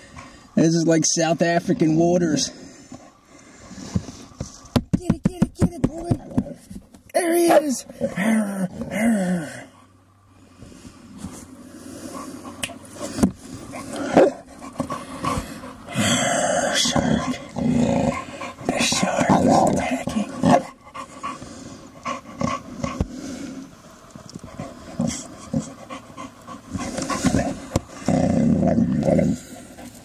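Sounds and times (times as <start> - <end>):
knocks on plastic box: 4.7 - 6.5
dog growling in play: 7.8 - 9.8, 11.8 - 23.7, 24.4 - 30.0.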